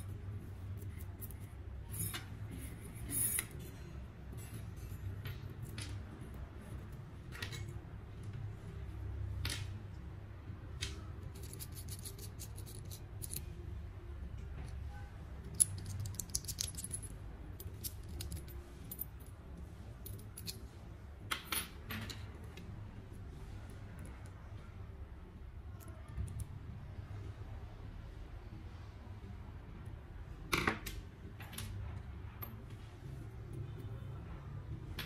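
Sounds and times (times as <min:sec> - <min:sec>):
small metal parts clicking: 0:00.8 - 0:06.0, 0:10.8 - 0:13.5, 0:15.4 - 0:19.4, 0:20.0 - 0:20.7.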